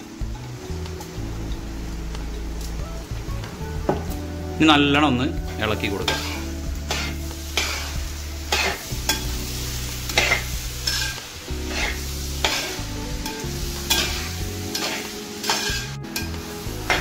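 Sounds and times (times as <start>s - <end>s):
onions sizzling: 0.0s - 17.0s
spoon scraping a metal pot: 6.1s - 9.3s, 10.1s - 15.9s.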